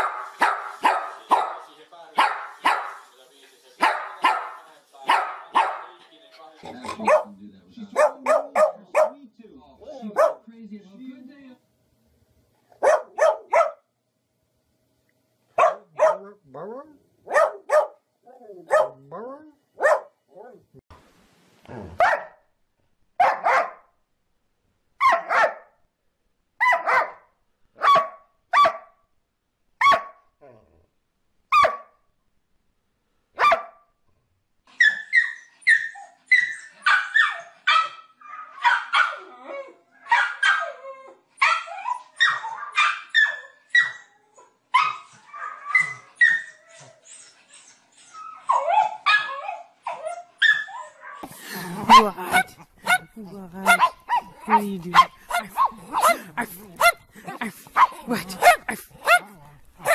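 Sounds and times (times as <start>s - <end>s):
small dog rapid high barks: 0.0s - 1.6s, 2.2s - 3.0s, 3.8s - 4.5s, 5.1s - 5.9s, 8.0s - 9.2s, 12.8s - 13.8s, 17.3s - 17.9s, 27.8s - 28.8s, 29.8s - 30.1s, 31.5s - 31.8s, 51.9s - 59.9s
dog single barks: 31.5s - 31.9s.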